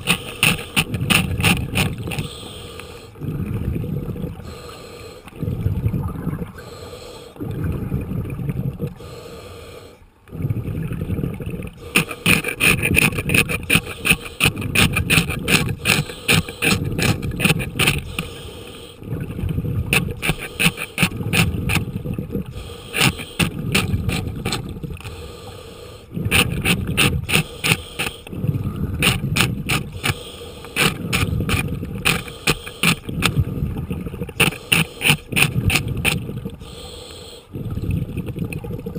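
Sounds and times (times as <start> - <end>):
tool scraping barnacles underwater: 0.0 - 3.7, 11.6 - 37.2
diver breathing and bubbles: 0.0 - 38.9.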